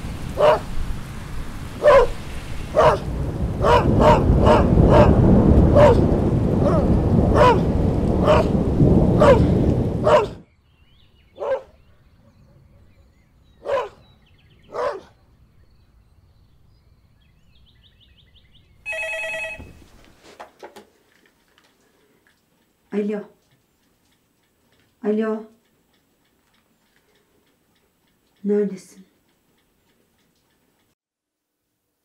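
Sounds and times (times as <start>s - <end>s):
dog barking: 0.4s - 0.7s, 1.8s - 8.6s, 9.2s - 10.4s, 11.4s - 11.8s, 13.6s - 14.0s, 14.7s - 15.2s
loud low rumbling noise: 2.4s - 10.4s
telephone ringing: 18.9s - 19.9s.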